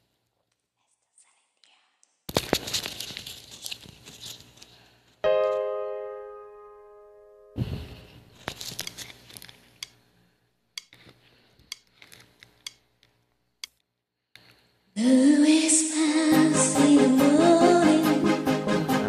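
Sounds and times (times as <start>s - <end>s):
karaoke backing music: 15.0s - 19.0s.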